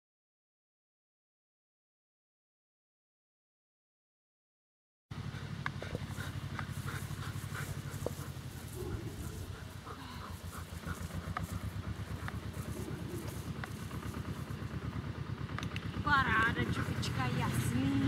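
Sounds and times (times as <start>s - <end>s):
dog panting: 5.1s - 15.0s, 16.3s - 18.0s
low fast throbbing: 5.1s - 18.0s.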